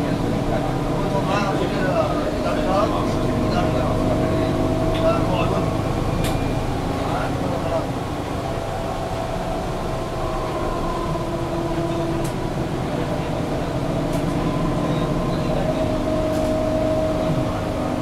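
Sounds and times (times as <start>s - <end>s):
bus diesel engine rumble: 0.0s - 18.0s.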